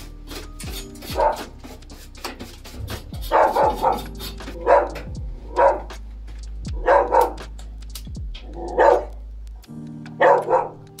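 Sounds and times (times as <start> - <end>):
background music with deep bass: 0.0 - 11.0
dog barking: 1.2 - 1.5, 3.2 - 5.9, 6.8 - 7.4, 8.6 - 9.1, 10.2 - 10.8.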